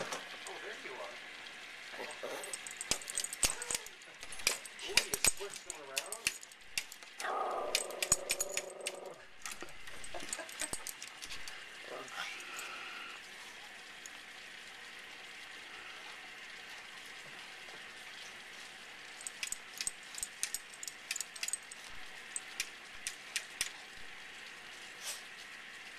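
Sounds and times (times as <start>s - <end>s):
dog whining: 2.0s - 4.0s, 7.2s - 9.3s
dog muzzle tapping on glass: 2.6s - 11.4s.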